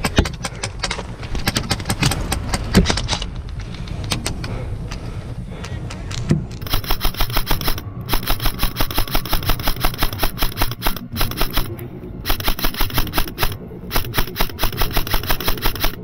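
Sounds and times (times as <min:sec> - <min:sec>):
airsoft rifle firing full-auto: 0:06.6 - 0:16.0.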